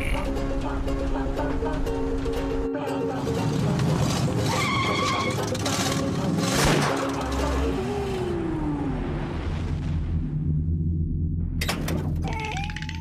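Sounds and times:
low rumble: 7.2s - 12.3s.

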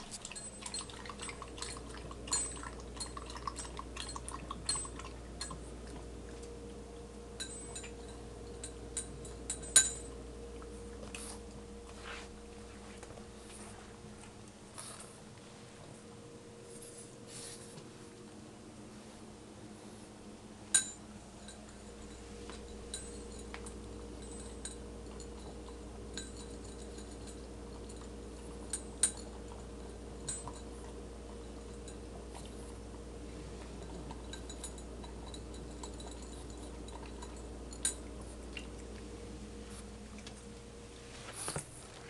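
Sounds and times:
dog eating from bowl: 0.0s - 18.4s, 19.7s - 42.0s
steady low hum: 0.0s - 42.0s
clinks against bowl: 0.2s - 5.6s, 7.4s - 10.2s, 20.7s - 32.5s, 33.8s - 38.3s.

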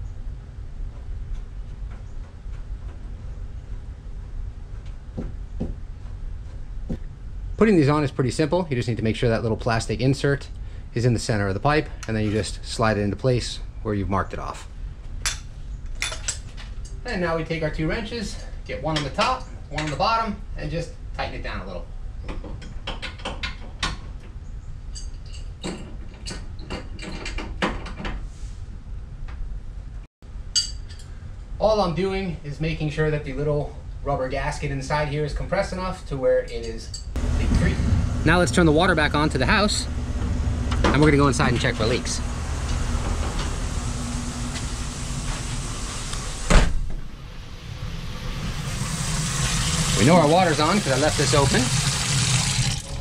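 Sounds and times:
background hum and hiss: 0.0s - 53.0s
door banging shut: 44.4s - 47.2s.

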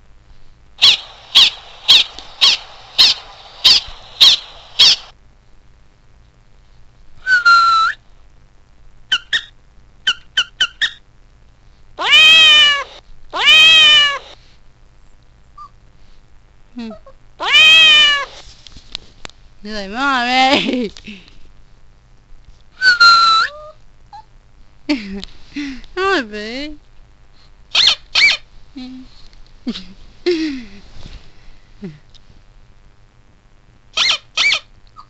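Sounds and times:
dog chirps: 0.8s - 5.1s, 9.1s - 11.0s, 15.6s - 15.8s, 22.8s - 24.3s, 27.7s - 28.5s, 33.9s - 35.0s
dog yipping: 9.1s - 9.5s, 10.1s - 11.0s, 22.8s - 24.3s, 27.7s - 28.4s, 34.0s - 35.0s
dog whining: 15.6s - 15.8s, 22.8s - 24.3s.

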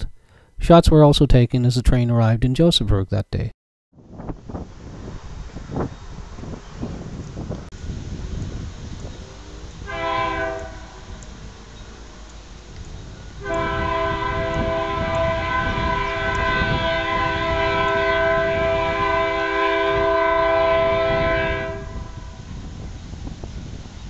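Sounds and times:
low rumble of train: 4.0s - 24.0s
locomotive chime horn: 9.2s - 12.0s, 13.4s - 22.4s.

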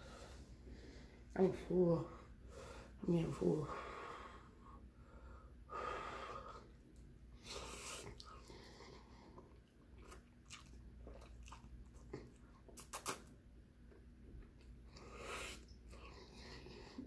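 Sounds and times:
wet chewing: 7.9s - 13.3s.

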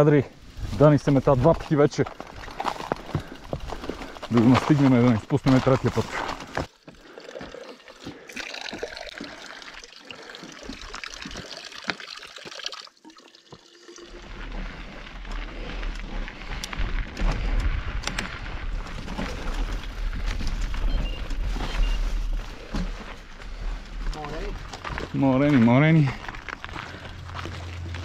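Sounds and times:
bike tyre noise on dirt: 0.0s - 6.7s, 14.2s - 28.0s.

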